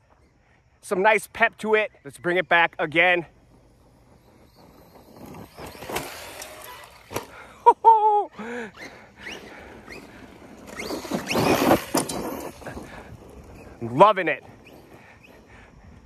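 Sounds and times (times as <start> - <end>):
tyres crunching through gravel: 1.1 - 15.5
electric motor whining: 3.3 - 7.6, 8.4 - 13.8.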